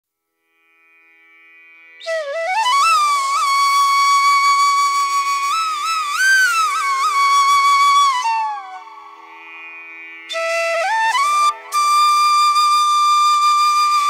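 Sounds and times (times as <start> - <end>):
wind instrument melody: 2.0 - 9.2, 10.3 - 14.0.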